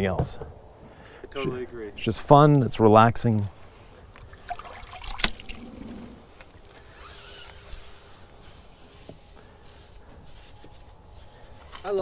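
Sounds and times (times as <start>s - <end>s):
water dripping: 4.1s - 5.7s.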